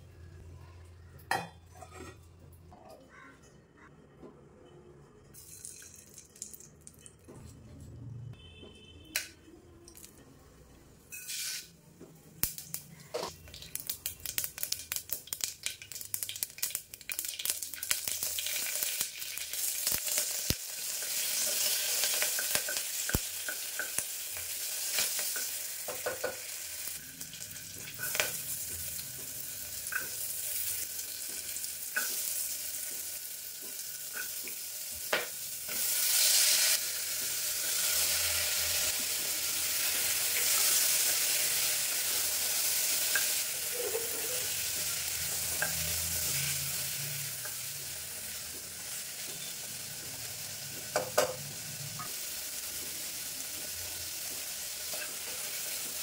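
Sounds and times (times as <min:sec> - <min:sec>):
oil crackling and popping: 0:05.4 - 0:07.3, 0:12.4 - 0:36.0
spices frying in hot oil: 0:12.4 - 0:56.0.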